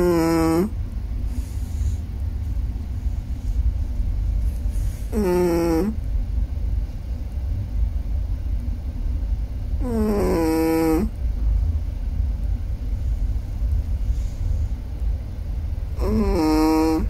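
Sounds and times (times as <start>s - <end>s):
dog snoring: 0.0s - 2.0s, 4.7s - 6.0s, 9.8s - 11.2s, 16.0s - 17.0s
low steady rumble: 0.0s - 17.0s.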